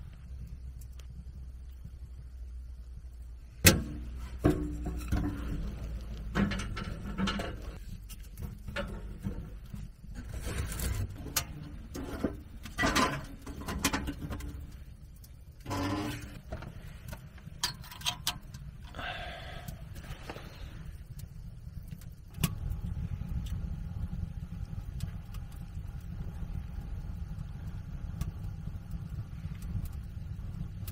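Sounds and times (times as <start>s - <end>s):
kindling crackling in stove: 0.0s - 30.9s
steady low hum: 0.0s - 30.9s
metal knocks from stove fittings: 3.6s - 7.8s, 11.2s - 14.6s.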